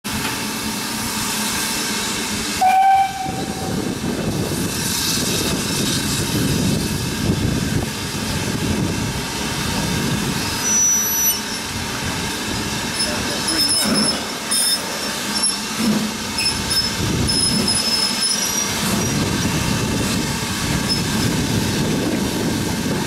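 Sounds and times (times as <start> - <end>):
locomotive rumbling: 0.1 - 23.0
steam locomotive whistle: 2.6 - 3.8, 10.6 - 11.6
thin high squeal: 10.6 - 11.6.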